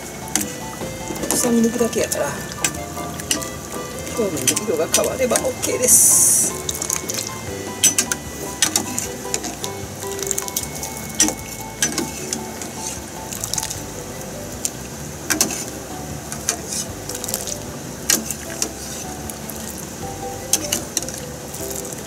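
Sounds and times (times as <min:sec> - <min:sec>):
water sloshing in saucepan: 0:00.0 - 0:13.8.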